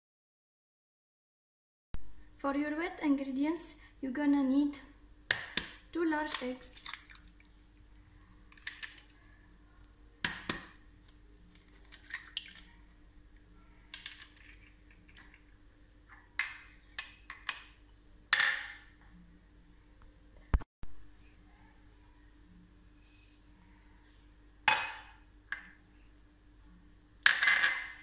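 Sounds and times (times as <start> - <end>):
faint steady hum: 2.0 - 28.0
glass cups clinking: 16.4 - 17.8.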